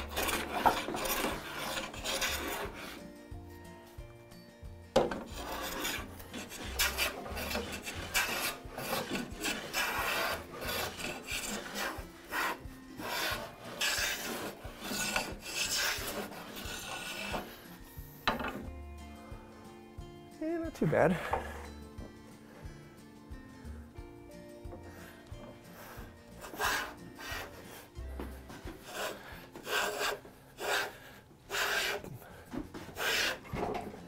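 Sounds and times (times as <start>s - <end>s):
hand plane rasping on wood: 0.0s - 3.1s, 5.0s - 18.6s, 24.8s - 34.0s.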